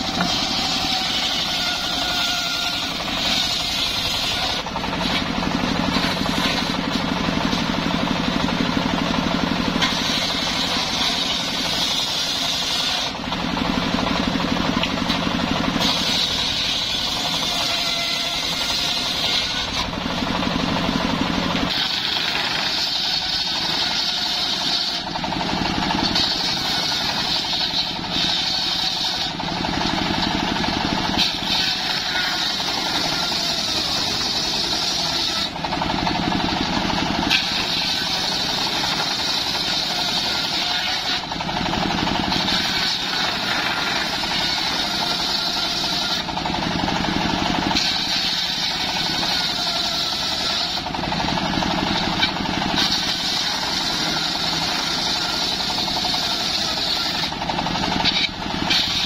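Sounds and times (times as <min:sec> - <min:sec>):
table saw ripping wood: 0:00.0 - 0:59.0.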